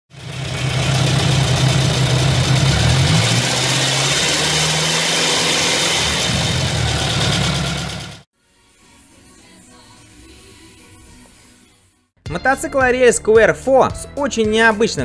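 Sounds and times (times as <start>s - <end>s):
motorcycle engine idling: 0.1s - 3.7s, 6.3s - 8.2s.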